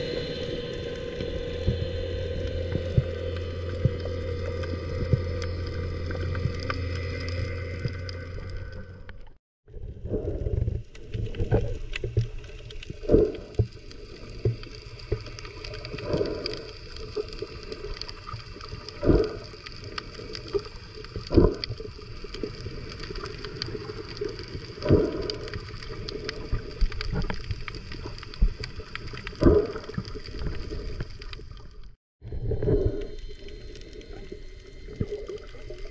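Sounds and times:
steady hum: 0.0 - 9.4
muffled underwater water wash: 0.0 - 35.9.

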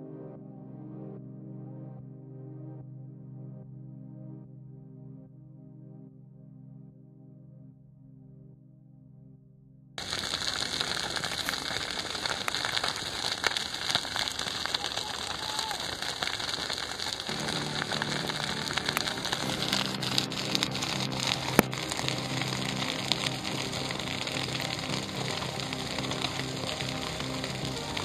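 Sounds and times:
crackling hiss: 10.0 - 28.0
music with held notes: 17.3 - 28.0.

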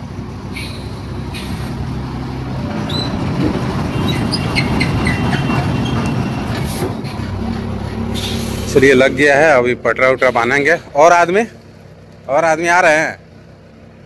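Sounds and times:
diesel truck engine: 0.0 - 14.0
short high squeaks: 2.8 - 3.3, 4.0 - 7.2, 8.2 - 8.6.

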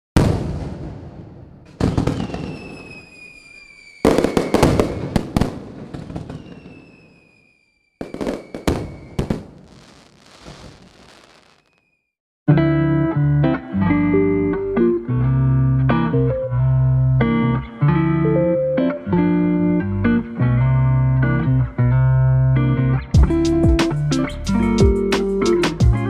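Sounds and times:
fireworks banging and crackling: 0.2 - 11.9
thin falling whistle: 2.2 - 4.7, 6.2 - 9.3, 11.4 - 12.1.

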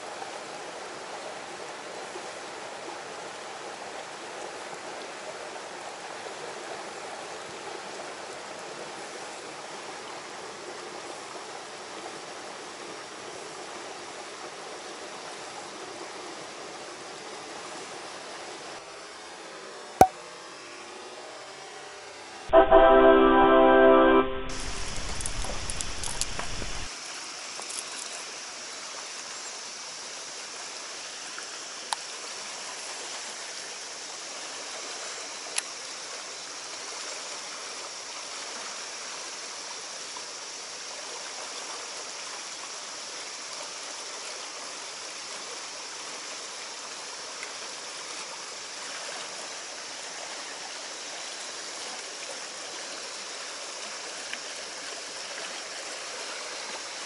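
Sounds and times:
stream water running over rock: 0.0 - 19.9, 24.5 - 57.0
musical jingle: 22.5 - 25.6
sharp clicks: 24.5 - 26.9.

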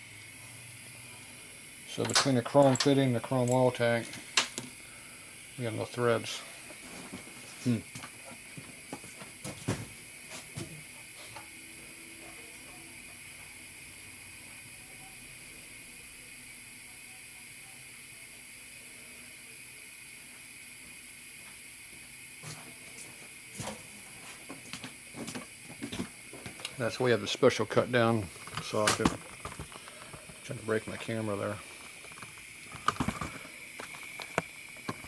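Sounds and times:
steady background hiss: 0.0 - 35.0
hand tools tapping on metal: 2.0 - 4.6.

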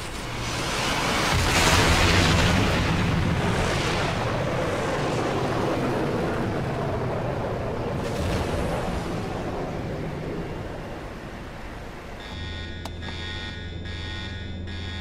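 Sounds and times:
jet engine roar on takeoff: 0.0 - 13.4.

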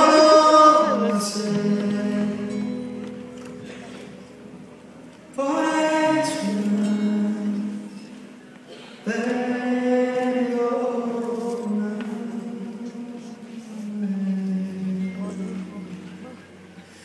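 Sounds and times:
person singing long notes: 0.0 - 4.4
acoustic guitars: 0.0 - 17.0.

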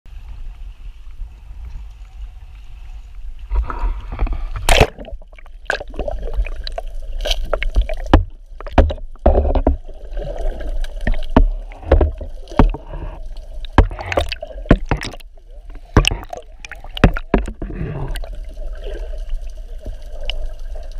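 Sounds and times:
low rumble of wind and water: 0.1 - 20.9
muffled underwater sloshing and bubbling: 0.1 - 20.9
loud splash: 4.6 - 6.4
sharp clicks and knocks: 7.5 - 9.8, 11.1 - 17.8.

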